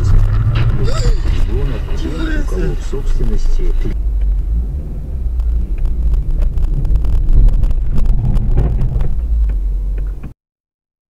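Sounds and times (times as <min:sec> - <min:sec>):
car engine and tyres rumbling: 0:00.0 - 0:10.4.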